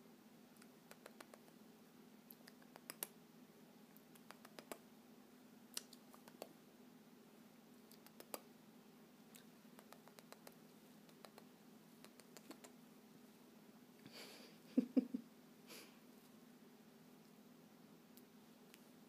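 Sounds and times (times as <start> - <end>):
faint steady hum: 0.0 - 19.0
faint clicks: 9.3 - 12.8.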